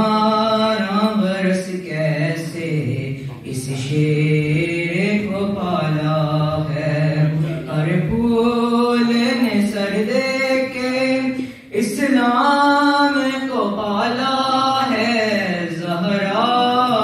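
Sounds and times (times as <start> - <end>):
boy chanting into a microphone: 0.0 - 17.0.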